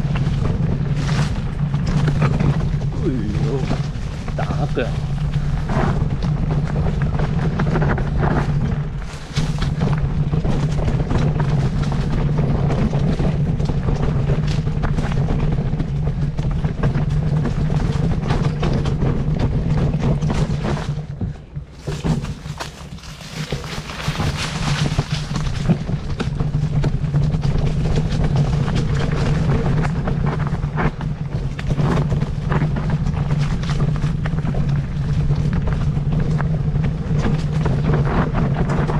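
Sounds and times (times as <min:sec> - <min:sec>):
engine humming: 0:16.0 - 0:37.9.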